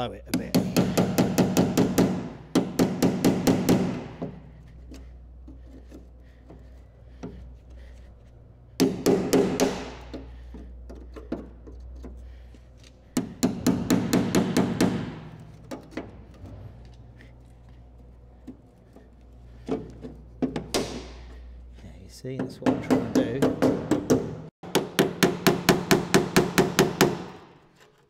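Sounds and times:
hammer striking chisel on steel: 0:00.3 - 0:05.0, 0:08.8 - 0:12.1, 0:13.2 - 0:16.1, 0:22.3 - 0:27.6.

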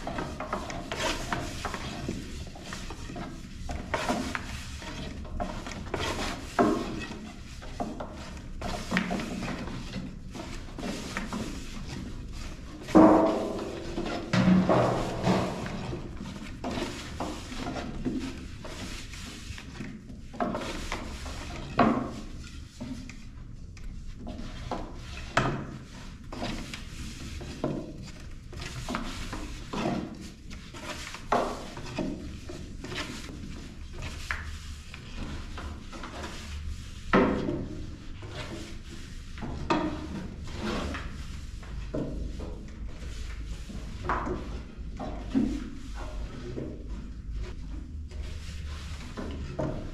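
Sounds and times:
wooden clacks and knocks: 0:00.0 - 0:19.0
rolling pins rolling over dough: 0:00.0 - 0:49.9.

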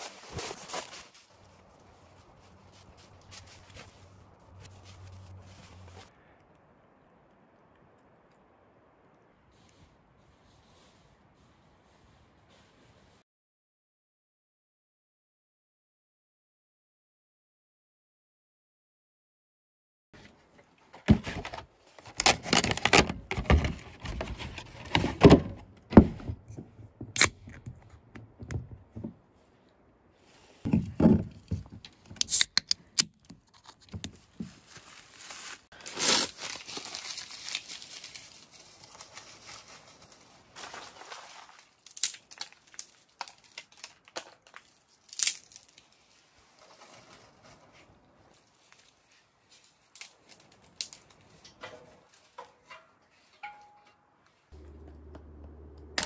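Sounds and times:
paper crumpling and tearing: 0:22.0 - 0:24.4, 0:34.6 - 0:47.6
can tab cracking open: 0:32.2 - 0:32.8.

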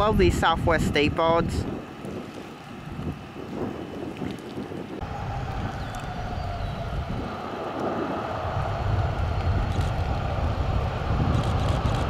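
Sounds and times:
wind rumble on microphone: 0:00.0 - 0:12.0
jet engines running at low power: 0:05.0 - 0:12.0.

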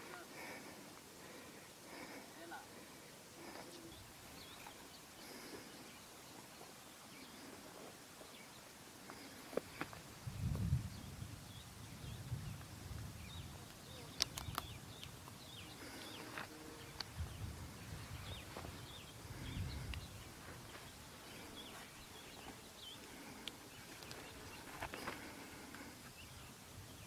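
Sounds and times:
wind rumbling on microphone: 0:09.9 - 0:22.4
faint bird chirps: 0:13.2 - 0:25.3.

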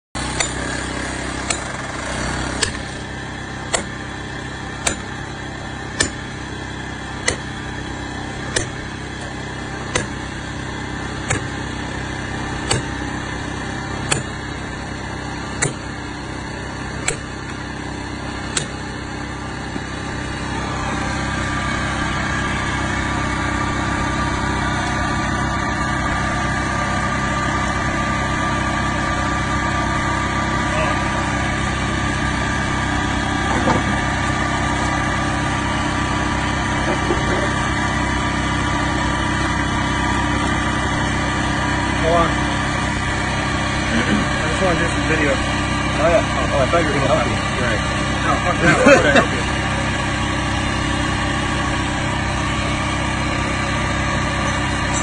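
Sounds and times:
sledgehammer striking steel wedges: 0:00.2 - 0:14.8, 0:15.4 - 0:16.2, 0:16.8 - 0:17.7, 0:18.4 - 0:19.0
engine running: 0:00.2 - 0:55.0.

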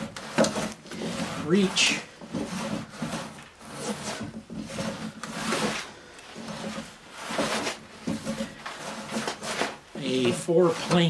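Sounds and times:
hand plane rasping on wood: 0:00.0 - 0:11.0.

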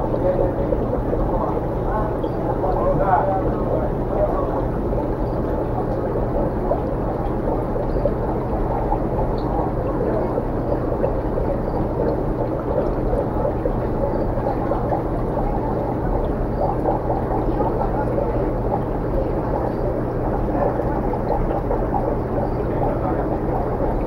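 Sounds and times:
aquarium water rushing: 0:00.0 - 0:24.0.

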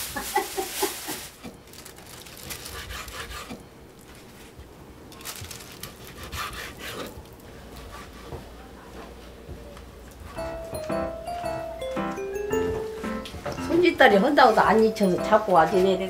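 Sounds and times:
rubbing and scraping on wood: 0:02.6 - 0:03.6.

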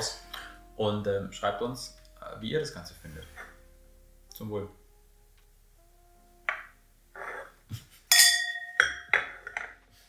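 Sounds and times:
glass clinking with ringing tone: 0:08.1 - 0:09.8.

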